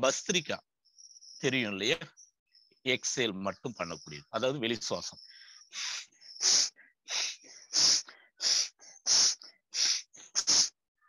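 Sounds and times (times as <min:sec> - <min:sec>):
man exhaling sharply through nose: 0:05.8 - 0:10.8.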